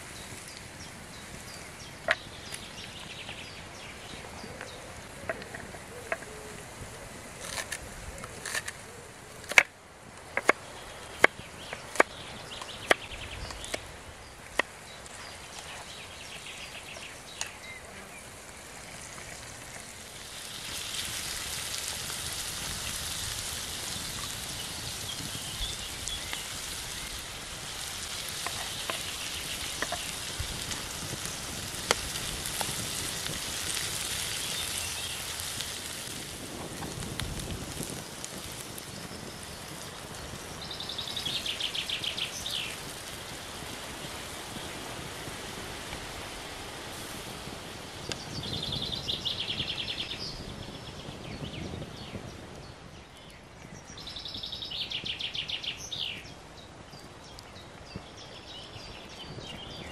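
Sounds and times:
vegetables sizzling in a pan: 15.0s - 50.7s.

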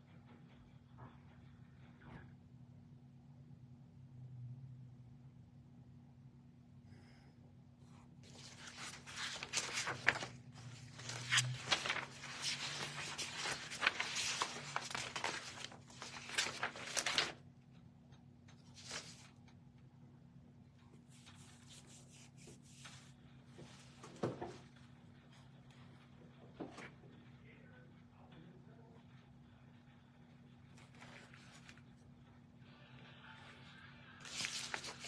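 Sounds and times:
paper rustling and crinkling: 8.2s - 17.5s, 18.5s - 19.6s, 21.0s - 27.3s, 30.2s - 32.8s, 34.2s - 35.0s.

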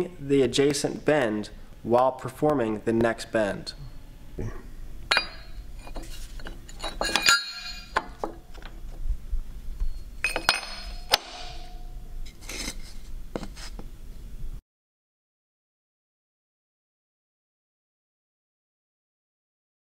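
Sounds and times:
metal shims clinking: 5.1s - 8.7s, 9.8s - 12.8s.

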